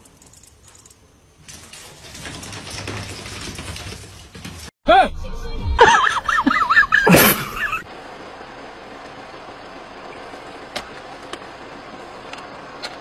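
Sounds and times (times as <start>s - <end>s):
vehicle hum and hiss: 6.5s - 13.0s.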